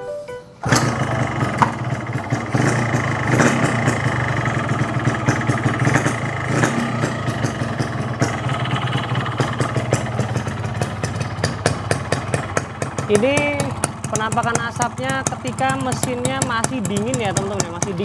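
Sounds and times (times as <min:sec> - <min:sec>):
two-stroke motorcycle engine idling: 0:00.6 - 0:18.0.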